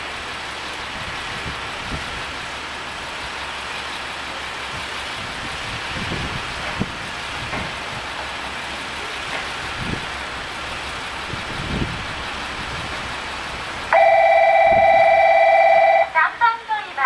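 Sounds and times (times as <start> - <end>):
diesel railcar engine hum: 0.0 - 17.0
two-note train horn: 13.9 - 16.2.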